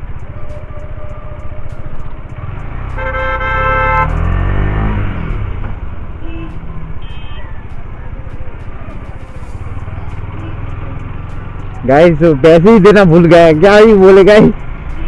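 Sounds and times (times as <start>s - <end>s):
motorcycle engine revving: 1.2s - 7.3s
vehicle horn: 2.8s - 4.5s, 6.2s - 7.6s.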